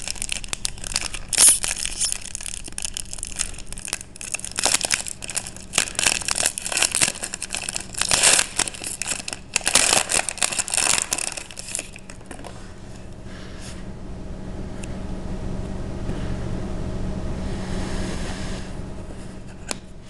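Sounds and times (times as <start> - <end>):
foil wrapper crinkling and tearing: 0.0 - 12.6.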